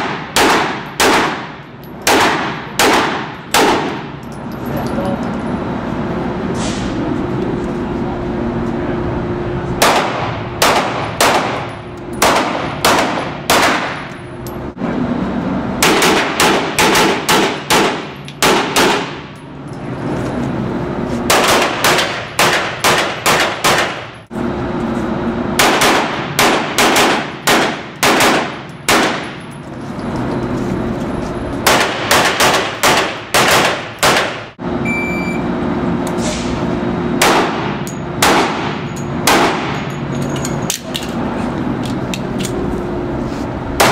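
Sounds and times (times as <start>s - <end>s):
gunshots indoors rapid fire: 0.0s - 4.0s, 9.8s - 14.0s, 15.8s - 19.2s, 21.3s - 24.1s, 25.6s - 29.3s, 31.6s - 34.6s, 37.2s - 39.8s.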